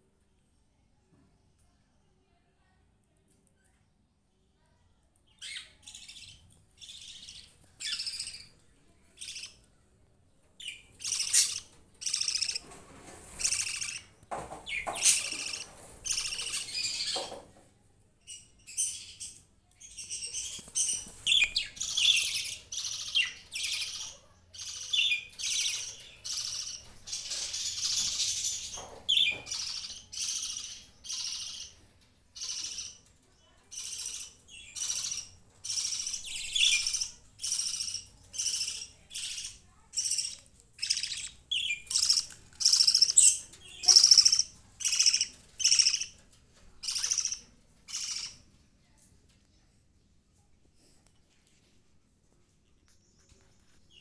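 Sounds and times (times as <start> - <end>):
budgerigars chirping: 10.6 - 12.6, 14.7 - 17.1, 33.8 - 46.2, 46.8 - 48.3.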